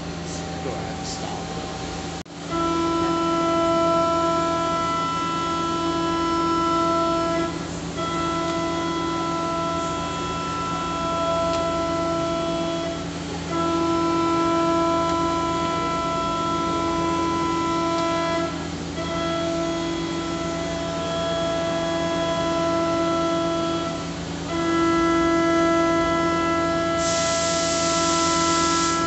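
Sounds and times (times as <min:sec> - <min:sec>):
lathe axis drives whining: 0:00.0 - 0:29.0.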